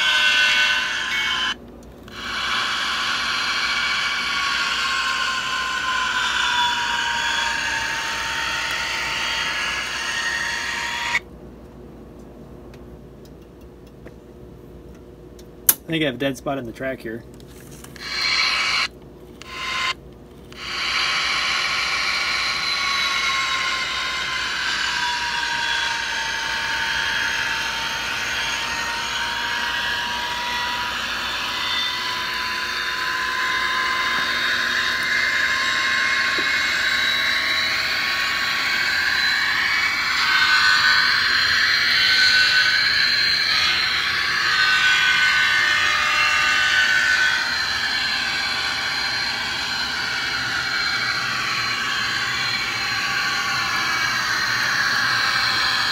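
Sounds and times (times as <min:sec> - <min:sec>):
model locomotive motor whine: 0:00.0 - 0:11.2, 0:17.5 - 0:55.9.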